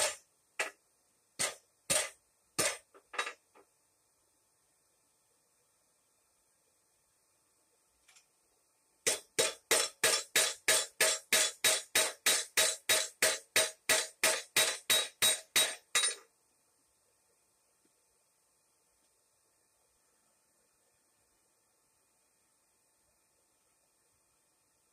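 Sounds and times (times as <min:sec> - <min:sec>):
hammer ringing on an anvil: 0:09.1 - 0:16.2.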